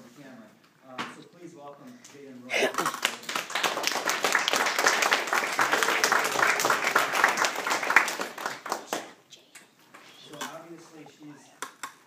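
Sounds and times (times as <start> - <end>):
small audience applauding: 2.8 - 9.2.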